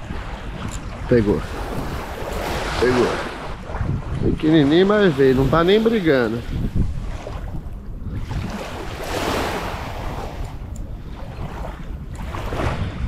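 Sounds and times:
sea water washing: 0.0s - 13.0s
wind rumble on microphone: 0.0s - 13.0s.

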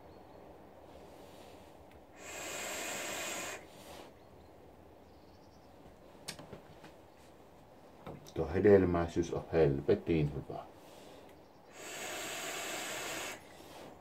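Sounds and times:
soft breathing: 0.8s - 4.3s, 10.7s - 14.0s
loud hiss of breath: 1.2s - 4.1s, 10.8s - 14.0s.

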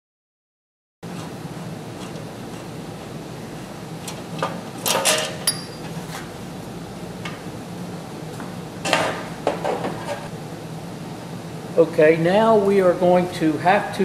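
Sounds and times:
metal parts clanking: 4.8s - 5.7s.

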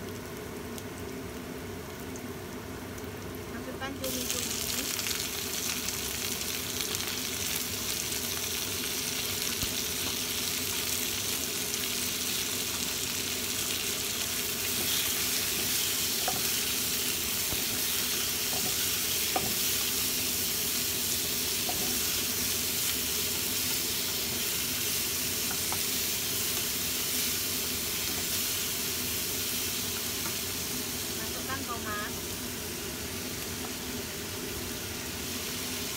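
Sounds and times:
squid sizzling in hot oil: 0.0s - 35.9s
spatula stirring in wok: 14.4s - 28.4s.

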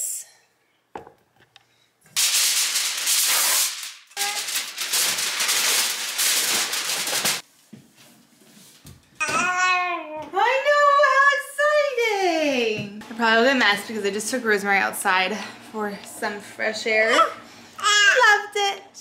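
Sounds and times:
aluminium foil crinkling: 2.2s - 7.4s.

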